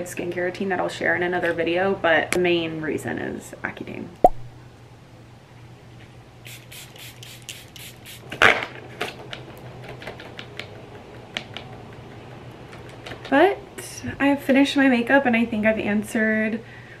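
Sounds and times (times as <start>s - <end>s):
spray bottle spritzes: 6.5s - 8.2s.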